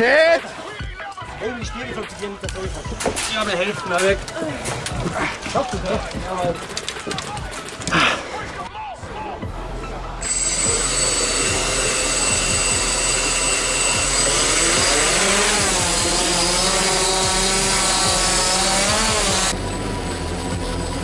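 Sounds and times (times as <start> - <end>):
drone motors whirring: 10.2 - 21.0.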